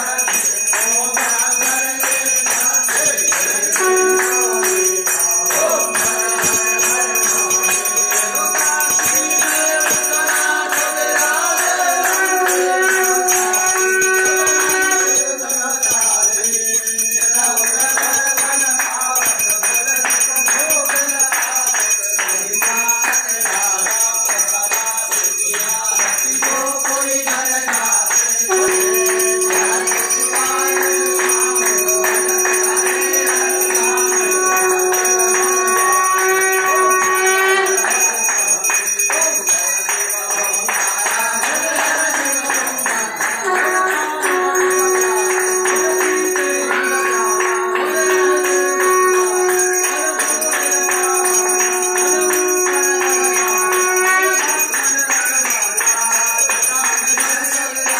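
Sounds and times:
long steady note: 0:00.0 - 0:15.5, 0:28.1 - 0:38.5, 0:41.4 - 0:55.1
temple bells ringing rapidly: 0:00.0 - 0:57.9
music: 0:00.1 - 0:57.9.

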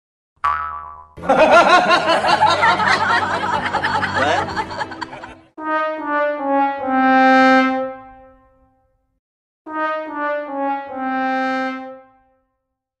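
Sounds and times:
sad trombone sound effect: 0:05.6 - 0:08.6, 0:09.7 - 0:12.2.

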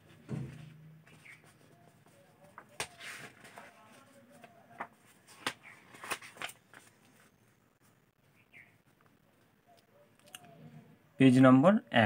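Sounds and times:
textbook pages flipping: 0:00.6 - 0:08.0.

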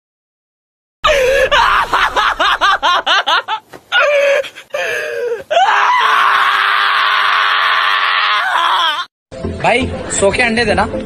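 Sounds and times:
man screaming and wailing: 0:01.0 - 0:09.1.

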